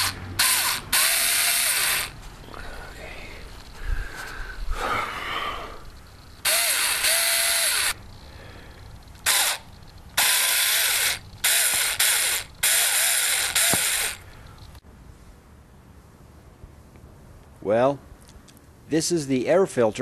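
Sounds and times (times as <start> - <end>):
ratchet wrench clicking: 0.0 - 2.2, 6.4 - 8.0, 9.0 - 14.2.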